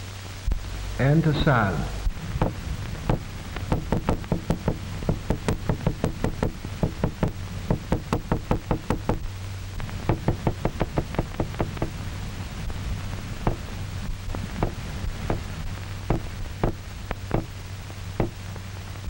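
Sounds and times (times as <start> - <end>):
soundtrack hum and hiss: 0.0 - 19.0
hammer tapping on a tabletop: 2.4 - 9.2, 9.9 - 12.0, 13.4 - 13.7, 14.4 - 15.5, 16.1 - 17.5.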